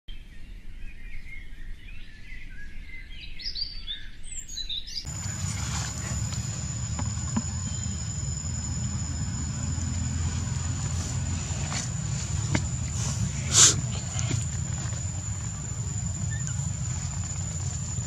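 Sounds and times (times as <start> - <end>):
high-pitched insect drone: 5.1 - 18.0
low rumble: 5.1 - 18.0
wavering high chirps: 5.1 - 18.0.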